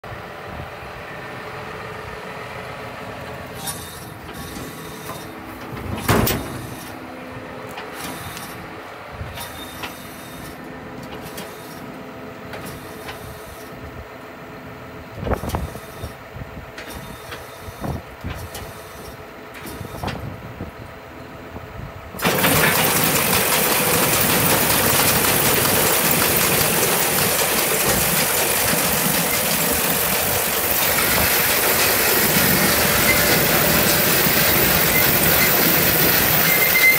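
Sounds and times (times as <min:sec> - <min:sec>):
engine idling: 0:22.2 - 0:36.9.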